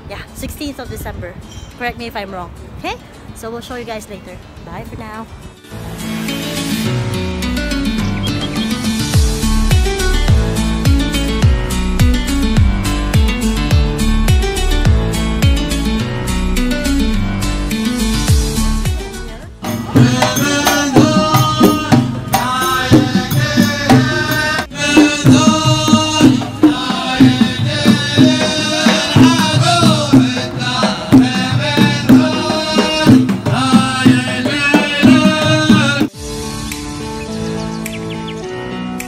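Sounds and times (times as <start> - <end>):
acoustic guitar music: 1.8 - 39.0
frame drums beating: 18.3 - 36.2
men singing together: 19.6 - 36.2.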